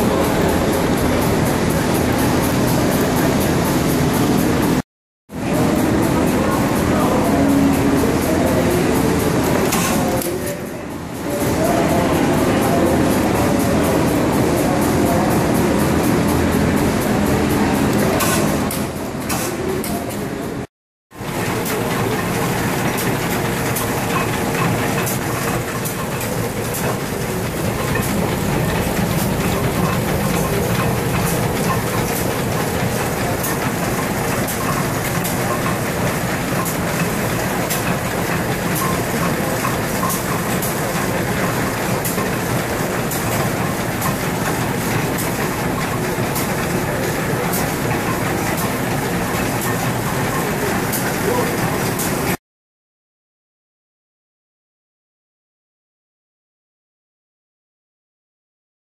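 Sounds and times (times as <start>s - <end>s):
stationary gas engines running: 0.0s - 4.8s, 5.4s - 52.4s
sharp engine clicks and knocks: 21.3s - 50.4s.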